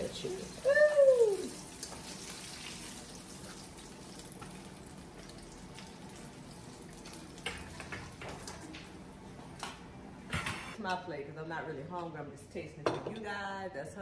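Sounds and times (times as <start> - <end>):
chicken sizzling in oil: 0.0 - 8.3.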